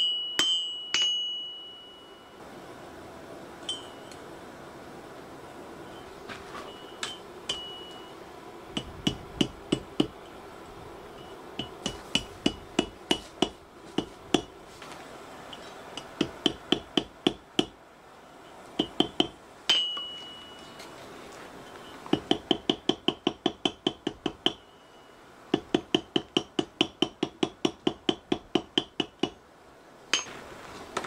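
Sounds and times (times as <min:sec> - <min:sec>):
hammer striking on anvil: 0:00.0 - 0:02.0, 0:07.0 - 0:08.0, 0:11.6 - 0:14.5, 0:18.8 - 0:20.7, 0:22.1 - 0:24.8, 0:30.1 - 0:30.4.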